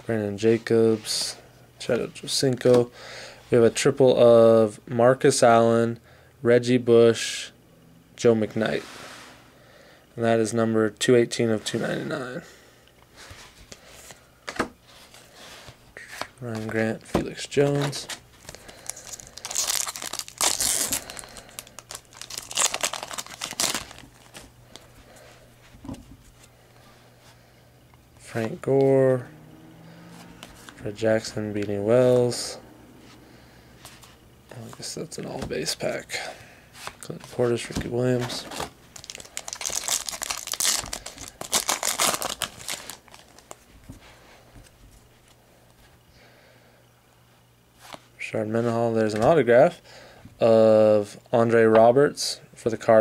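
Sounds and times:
foil wrapper crinkling and tearing: 0:18.4 - 0:24.5, 0:38.3 - 0:43.7.

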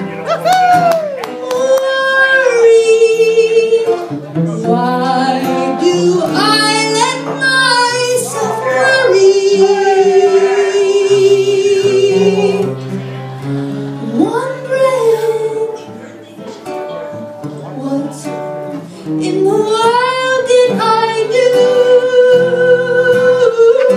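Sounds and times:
acoustic guitar: 0:00.0 - 0:23.9
woman singing a slow ballad: 0:01.6 - 0:12.8, 0:14.0 - 0:15.8, 0:19.1 - 0:23.9.

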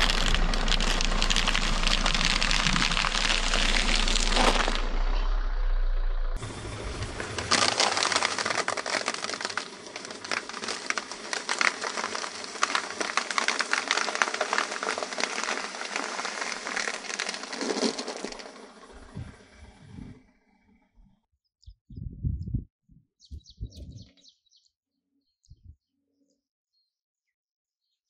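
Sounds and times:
spaghetti and foam crunching: 0:00.0 - 0:05.0, 0:06.4 - 0:19.2.

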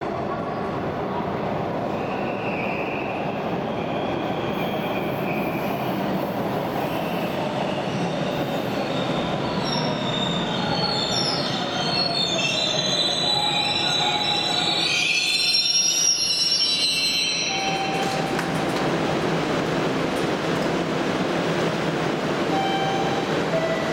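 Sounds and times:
subway train rolling rumble: 0:00.0 - 0:23.9
train brakes squealing: 0:01.9 - 0:18.7.

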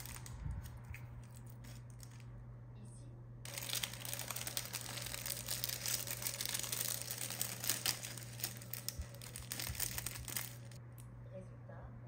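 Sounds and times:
plastic bag crinkling: 0:00.0 - 0:02.3, 0:03.5 - 0:10.8.

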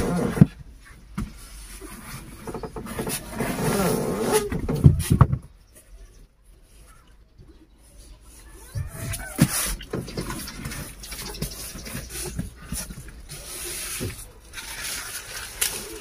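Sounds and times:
trunk scraping against seat: 0:00.0 - 0:00.6, 0:01.2 - 0:05.5.

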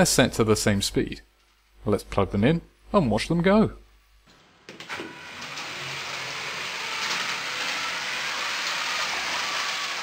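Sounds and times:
toy trains rattling on rails: 0:05.4 - 0:10.0.

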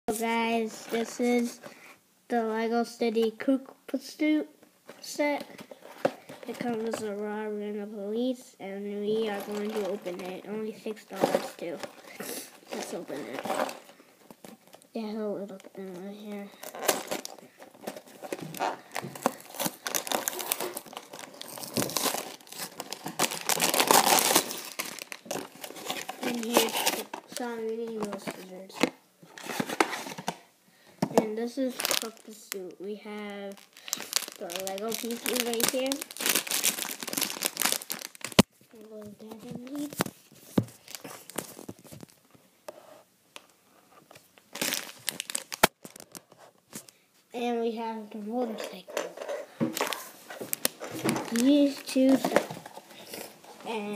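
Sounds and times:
plastic bag crinkling: 0:09.1 - 0:14.8, 0:16.4 - 0:30.3, 0:31.4 - 0:40.2, 0:44.5 - 0:46.3, 0:48.6 - 0:53.9
cardboard box crackling and tearing: 0:16.6 - 0:27.5, 0:31.7 - 0:32.3, 0:33.5 - 0:38.5, 0:44.6 - 0:46.1.

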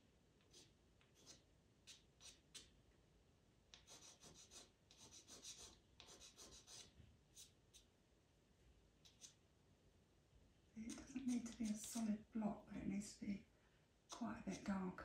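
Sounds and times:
pencil scratching on paper: 0:00.4 - 0:02.7, 0:03.7 - 0:07.9, 0:09.0 - 0:09.4, 0:10.8 - 0:12.1, 0:14.1 - 0:14.8.

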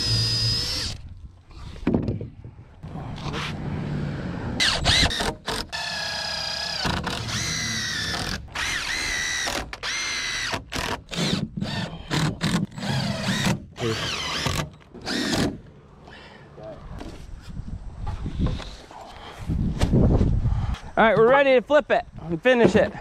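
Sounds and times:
cordless drill motor whining: 0:00.0 - 0:01.8, 0:04.6 - 0:15.4.

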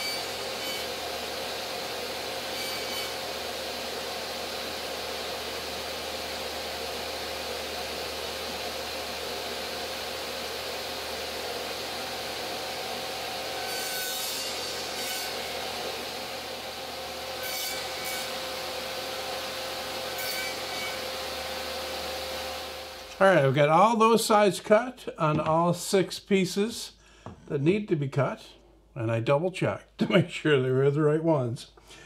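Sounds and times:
saw blade cutting wood: 0:00.0 - 0:04.0, 0:13.0 - 0:16.6, 0:17.3 - 0:21.5
table saw running: 0:00.0 - 0:23.5.

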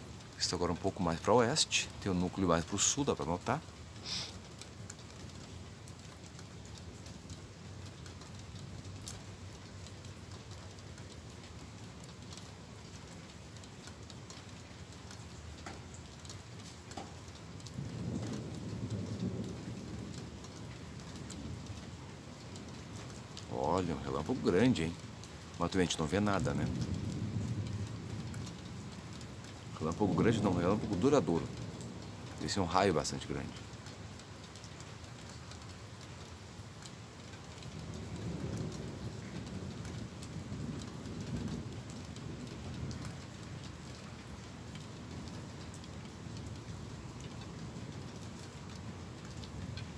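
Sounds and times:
raindrops ticking: 0:00.0 - 0:49.9
thunder rumbling: 0:17.1 - 0:23.2, 0:25.9 - 0:33.6, 0:37.7 - 0:49.9.

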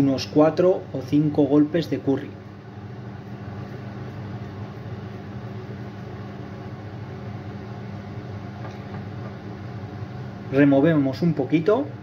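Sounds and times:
induction hob humming: 0:00.0 - 0:12.0.

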